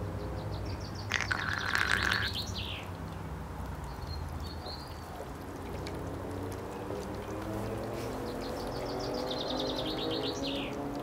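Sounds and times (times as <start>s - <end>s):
songbird chirping and trilling: 0.1s - 3.0s, 3.9s - 5.2s, 7.3s - 11.0s.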